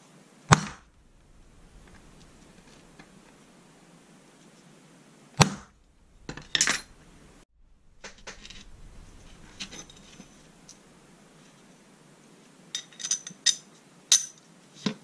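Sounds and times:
steel plate clinking: 0.8s - 4.0s, 5.8s - 11.7s.

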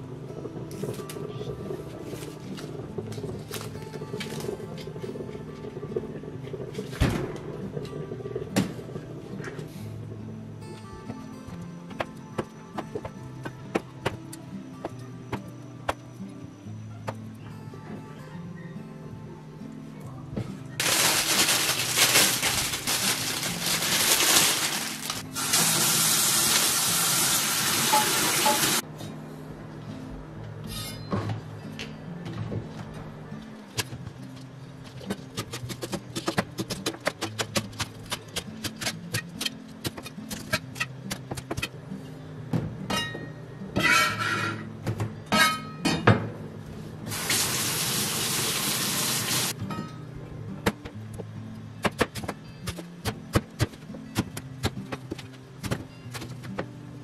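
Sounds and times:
kitchen tap running: 20.8s - 28.8s, 47.1s - 49.5s
water splashing over vegetables: 20.8s - 28.8s.

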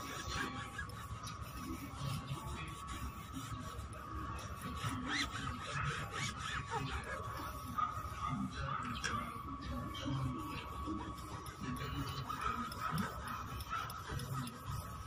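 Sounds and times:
cloth rubbing on tyre rubber: 0.0s - 8.4s, 9.0s - 15.0s.

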